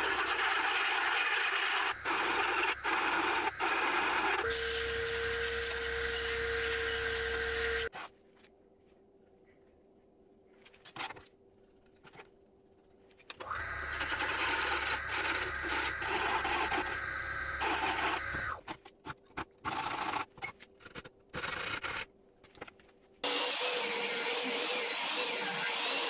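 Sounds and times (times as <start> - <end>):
small power tool motor running: 1.5 - 7.9, 13.4 - 18.6.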